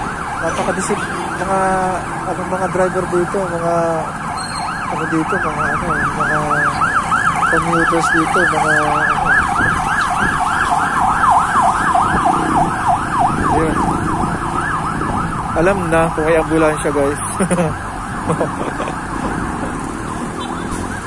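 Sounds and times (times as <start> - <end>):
ambulance siren yelping: 0.0 - 21.0
vehicle horns honking: 20.4 - 20.8.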